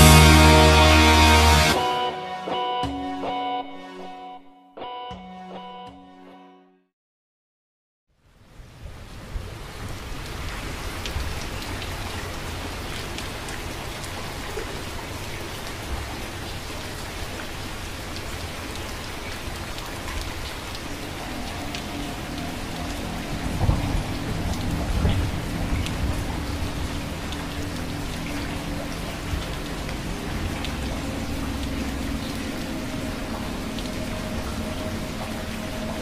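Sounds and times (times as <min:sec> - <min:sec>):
heavy rain: 0:00.0 - 0:02.2, 0:08.2 - 0:36.0
held musical tones: 0:21.0 - 0:36.0
rumble of thunder: 0:21.3 - 0:36.0.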